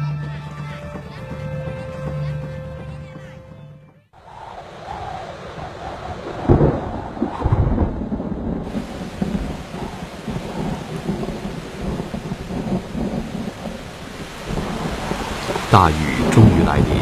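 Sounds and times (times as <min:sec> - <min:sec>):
rain hissing: 0:04.2 - 0:17.0
thunder rumbling: 0:04.2 - 0:17.0.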